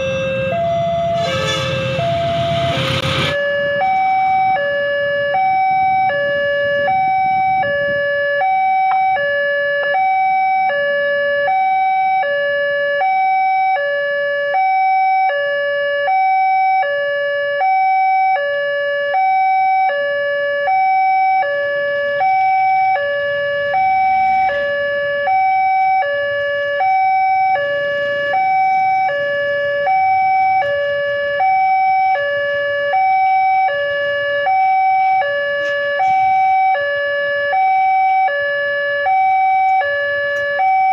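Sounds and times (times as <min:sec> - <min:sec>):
level-crossing alarm two-tone chime: 0:00.0 - 0:07.8.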